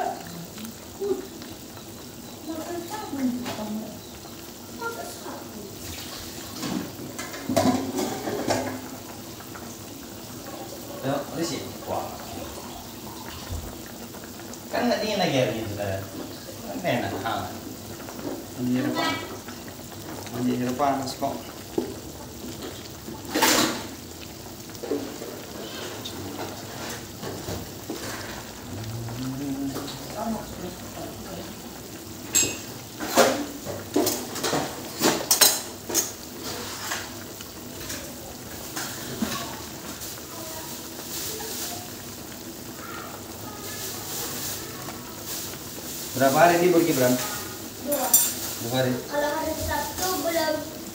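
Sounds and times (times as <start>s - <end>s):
broth simmering and bubbling: 0.0s - 50.9s
wok clattering: 5.9s - 10.0s, 31.8s - 40.2s, 43.7s - 50.9s
wooden spatula scraping a wok: 32.4s - 42.0s.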